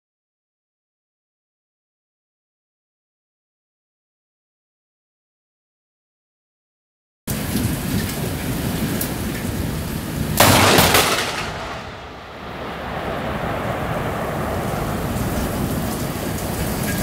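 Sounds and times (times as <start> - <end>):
heavy rain: 7.3 - 17.0
loud thunder crack: 10.4 - 17.0.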